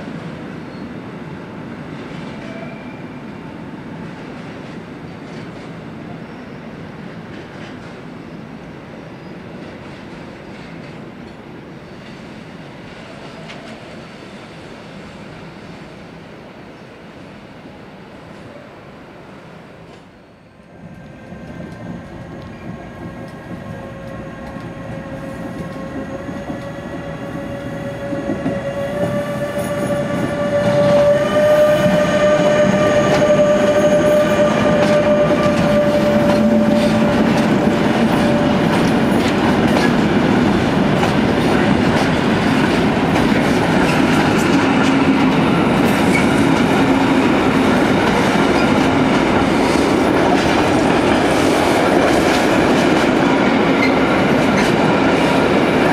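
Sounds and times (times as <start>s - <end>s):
freight train wagons rolling past: 20.7s - 55.9s.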